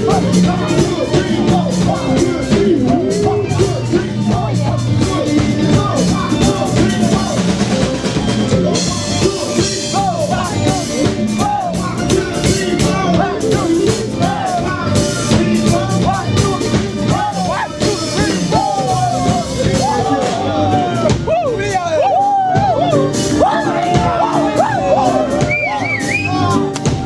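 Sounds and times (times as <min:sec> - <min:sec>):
accordion: 0:00.0 - 0:21.3
drum kit beat: 0:00.0 - 0:27.0
guitars: 0:00.0 - 0:27.0
person singing lead vocal: 0:00.0 - 0:27.0.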